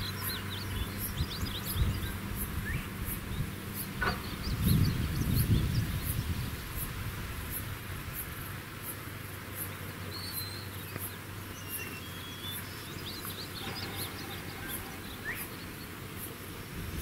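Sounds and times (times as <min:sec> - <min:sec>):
insect chirping: 0:00.0 - 0:17.0
bird chirps and whistles: 0:13.6 - 0:15.6.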